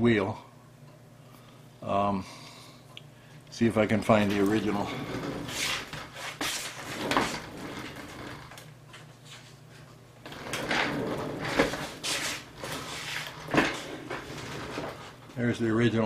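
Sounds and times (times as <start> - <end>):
objects knocking and scraping: 4.2 - 8.6, 10.2 - 15.2.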